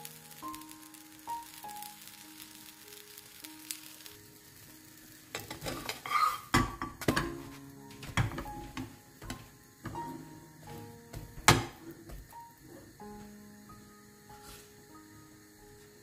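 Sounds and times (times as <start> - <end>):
background music: 0.0 - 16.0
flatbread sizzling in a pan: 0.0 - 16.0
metal spatula scraping a pan: 5.3 - 7.4.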